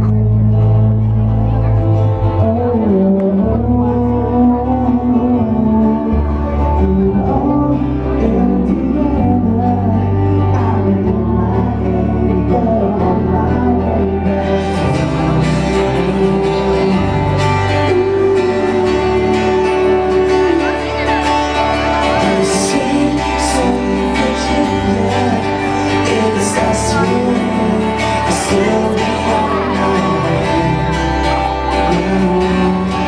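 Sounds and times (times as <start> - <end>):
live pop band playing: 0.0 - 33.0
man singing: 0.0 - 33.0.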